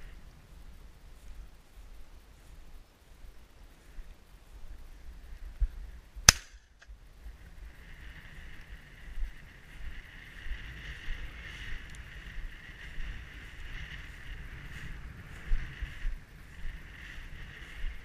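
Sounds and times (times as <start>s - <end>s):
faint high-pitched hiss: 0.0s - 18.0s
shotgun shot: 6.3s - 6.8s.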